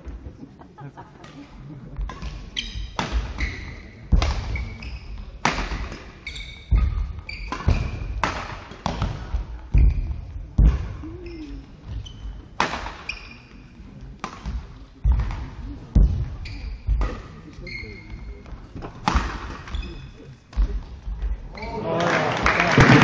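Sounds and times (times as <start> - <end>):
racket striking shuttlecock: 2.1 - 3.5, 5.4 - 11.0, 12.6 - 13.4
shoes squeaking on court floor: 2.2 - 21.8.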